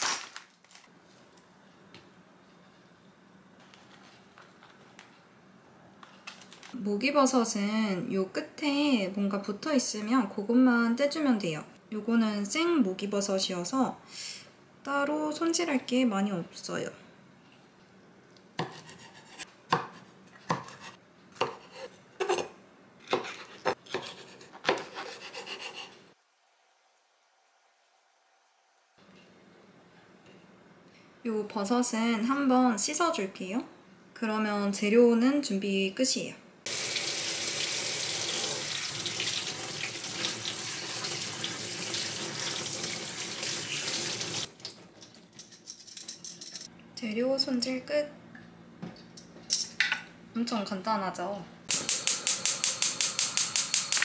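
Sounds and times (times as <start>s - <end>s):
knife chopping on wooden board: 18.6s - 21.7s, 23.1s - 25.8s
faucet spraying water: 36.7s - 44.5s.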